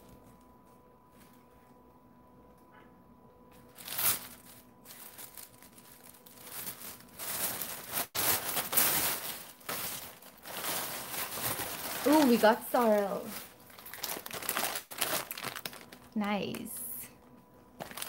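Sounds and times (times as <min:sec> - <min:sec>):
tissue paper rustling and crinkling: 0:03.7 - 0:16.8, 0:17.8 - 0:18.0.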